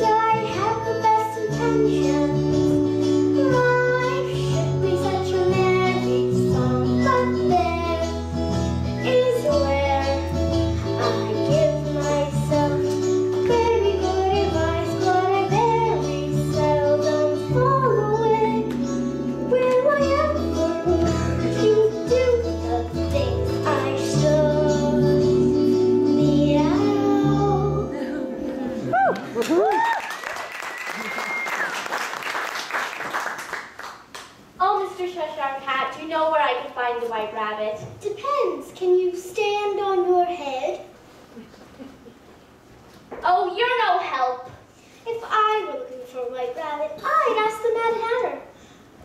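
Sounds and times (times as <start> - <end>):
girl singing: 0.0 - 28.9, 43.3 - 48.5
instrumental accompaniment with bass: 0.0 - 29.0.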